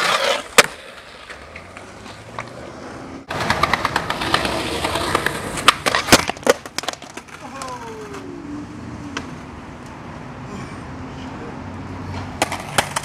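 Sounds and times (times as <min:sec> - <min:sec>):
skateboard grinding on ledge: 0:00.0 - 0:08.2
skateboard clack: 0:00.0 - 0:08.3, 0:09.1 - 0:10.0, 0:12.1 - 0:13.0
skateboard wheels rolling on pavement: 0:00.0 - 0:10.4, 0:11.6 - 0:13.0.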